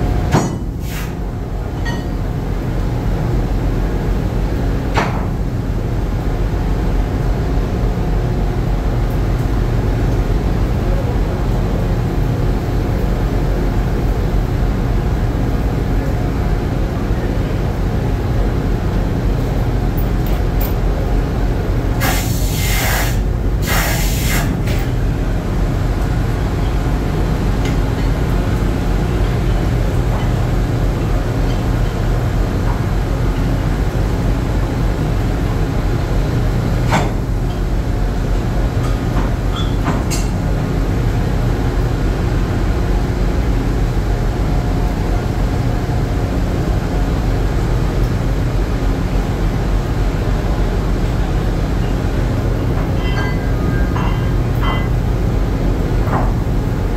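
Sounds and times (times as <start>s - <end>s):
machinery low drone: 0.0s - 56.9s
short bursts of hiss: 22.0s - 24.5s.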